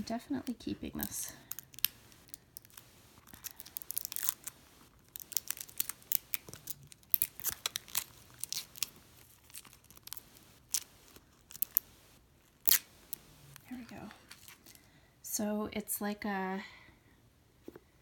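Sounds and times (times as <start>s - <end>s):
plastic film crinkling: 0.1s - 14.9s.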